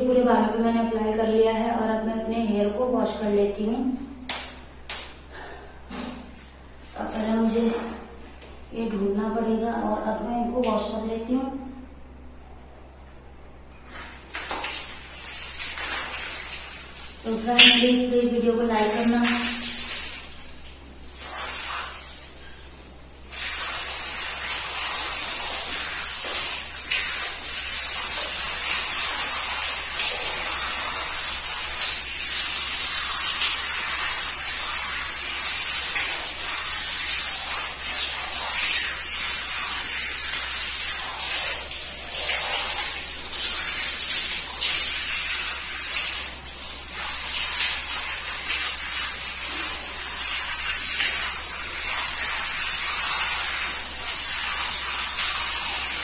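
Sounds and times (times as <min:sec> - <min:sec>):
shower head spraying water: 0:13.9 - 0:18.1, 0:18.8 - 0:56.0.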